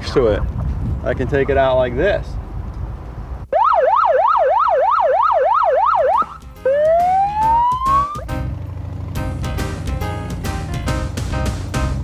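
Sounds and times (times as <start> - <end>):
police siren yelp: 3.5 - 8.3
siren wail: 3.5 - 8.3.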